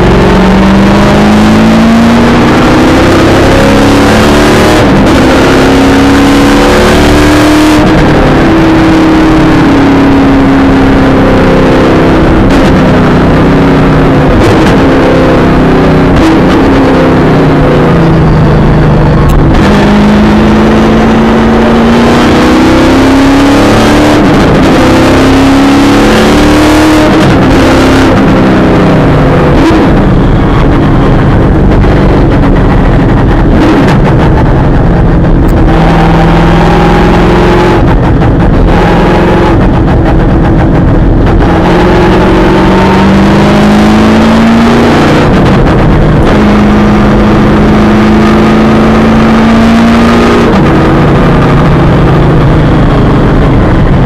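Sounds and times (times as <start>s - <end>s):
race car engine revving and shifting: 0.0s - 54.0s.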